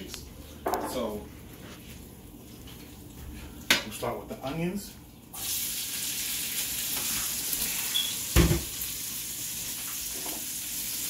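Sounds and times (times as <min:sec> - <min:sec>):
onions sizzling in oil: 0:05.3 - 0:11.0.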